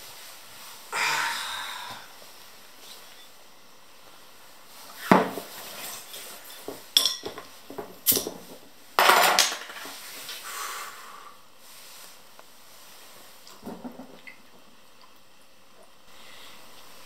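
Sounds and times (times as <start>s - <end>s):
glass bottles clinking: 5.2s - 7.5s.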